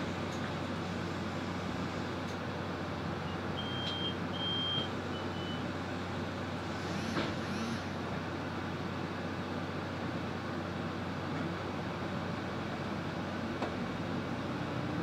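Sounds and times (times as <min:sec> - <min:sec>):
bus running hum: 0:00.0 - 0:15.0
short high beeps: 0:03.6 - 0:05.6.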